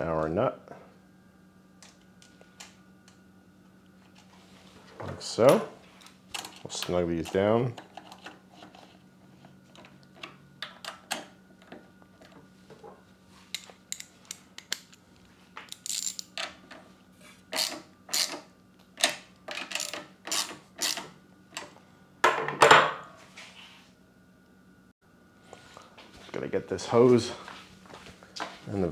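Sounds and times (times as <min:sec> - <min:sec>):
socket wrench ratcheting: 0:15.7 - 0:16.3, 0:17.6 - 0:18.4, 0:19.0 - 0:21.1.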